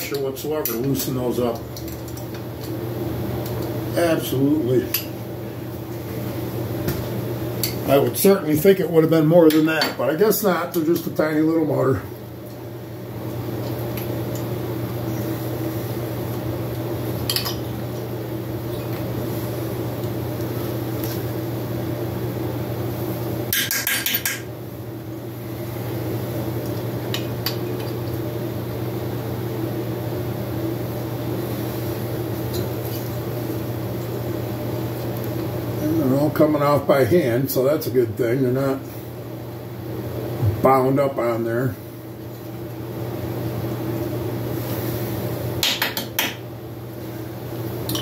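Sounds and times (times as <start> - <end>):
steady low hum: 0.0 - 48.0.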